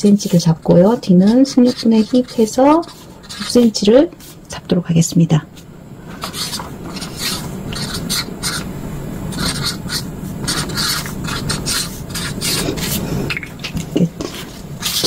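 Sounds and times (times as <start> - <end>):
marker pen scratching on paper: 0.2 - 4.4, 6.1 - 8.7, 9.3 - 13.0, 14.2 - 15.0.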